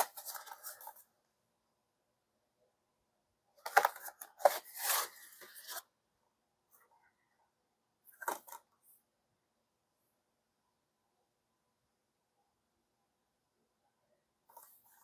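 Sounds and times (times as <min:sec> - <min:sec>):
plastic case and cardboard handled: 0:00.0 - 0:01.0, 0:03.6 - 0:05.8, 0:08.1 - 0:08.7.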